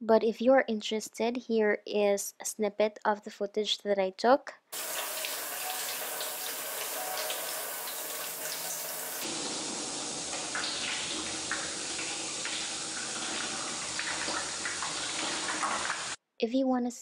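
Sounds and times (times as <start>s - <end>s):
water running over a hand: 4.8s - 16.2s.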